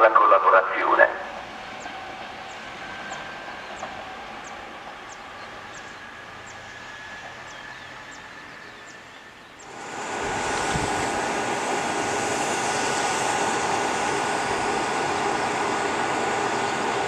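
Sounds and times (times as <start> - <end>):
distant train hum: 0.0 - 17.0
bird chirping: 1.7 - 9.7.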